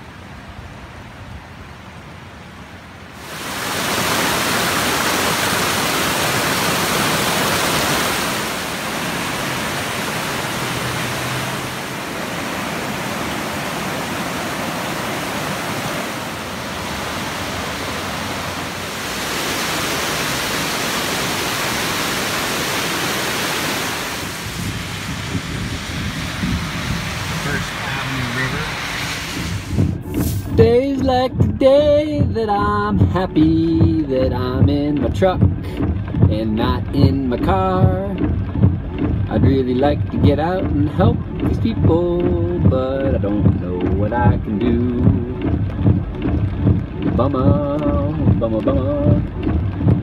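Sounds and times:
rushing floodwater: 0:00.0 - 0:30.6.

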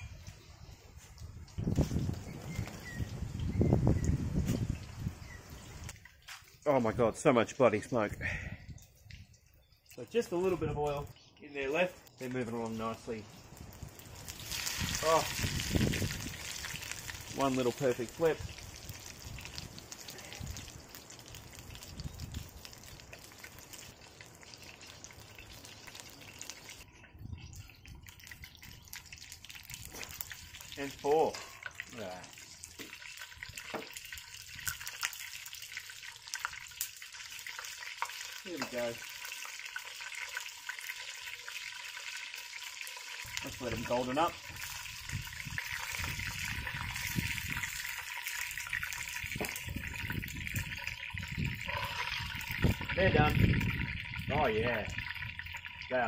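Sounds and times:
fish deep-frying in oil: 0:13.1 - 0:56.0.

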